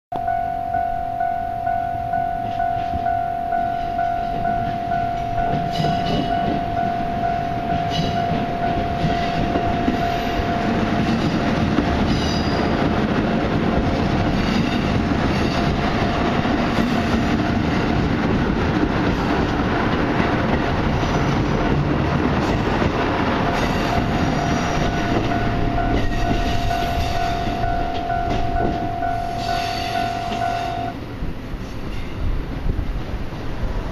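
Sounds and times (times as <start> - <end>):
level-crossing alarm ringing: 0.1 - 13.1, 23.4 - 31.0
diesel train engines rumbling: 0.2 - 33.9
train wheels clacking on rail joints: 2.4 - 31.0.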